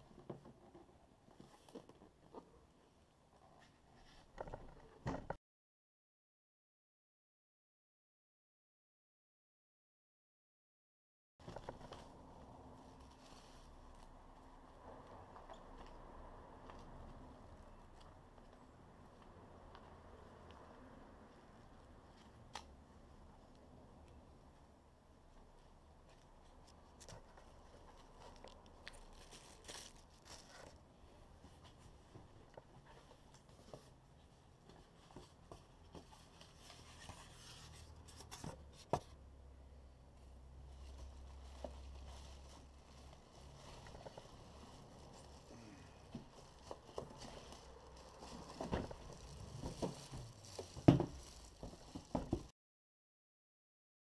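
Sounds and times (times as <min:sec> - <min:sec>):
paper rustling and crinkling: 0:26.2 - 0:30.8, 0:40.7 - 0:52.5.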